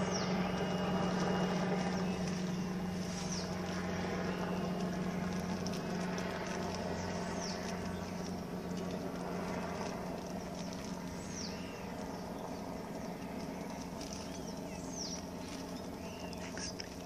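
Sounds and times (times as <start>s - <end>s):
soft arched bird notes: 0.0s - 17.0s
steady low hum: 0.0s - 17.0s
plastic wrap rustling and ticking: 1.0s - 12.2s.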